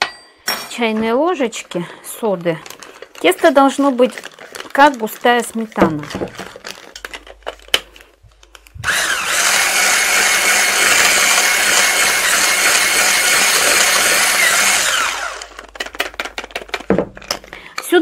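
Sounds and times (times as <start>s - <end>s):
electric whisk whipping batter: 8.8s - 16.9s.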